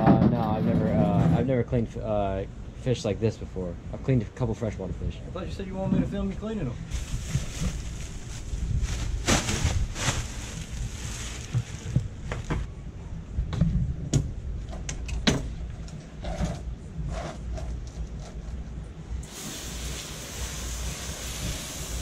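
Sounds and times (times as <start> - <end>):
wind rumble on microphone: 6.8 - 17.1.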